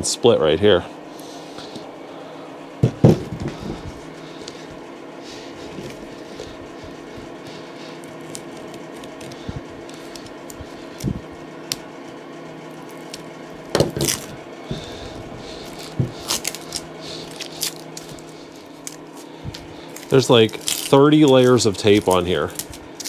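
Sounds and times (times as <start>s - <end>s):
tape peeling with crackling: 5.3s - 23.0s.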